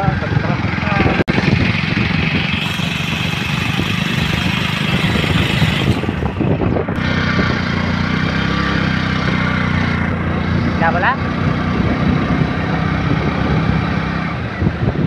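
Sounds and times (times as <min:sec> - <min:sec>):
motorbike engine running: 0:00.0 - 0:15.0
wind rushing over microphone: 0:00.0 - 0:15.0.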